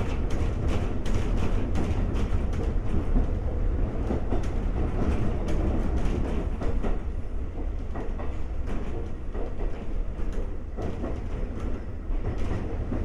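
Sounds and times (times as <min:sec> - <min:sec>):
train wheels rumbling: 0:00.0 - 0:13.0
wheels clicking over rail joints: 0:00.0 - 0:13.0.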